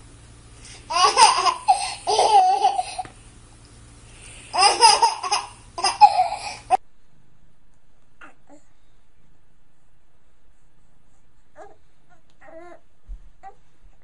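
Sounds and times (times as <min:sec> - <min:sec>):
baby laughing: 0:00.9 - 0:03.1, 0:04.5 - 0:06.8.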